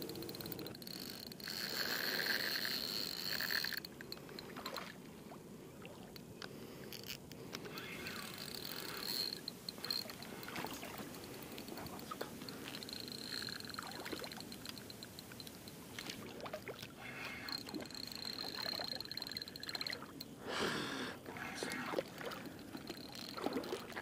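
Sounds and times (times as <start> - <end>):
fishing tackle clicks and rustles: 0.0 - 5.1, 6.0 - 20.4, 21.2 - 24.0
water lapping: 0.0 - 24.0.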